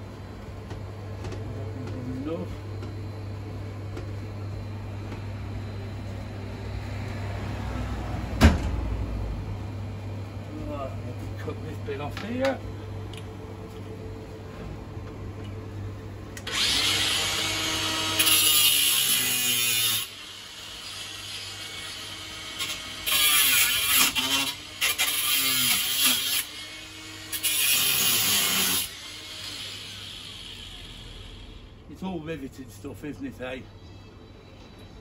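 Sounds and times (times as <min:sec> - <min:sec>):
grinder disc whining: 0:16.4 - 0:31.4
angle grinder cutting metal: 0:16.4 - 0:31.6.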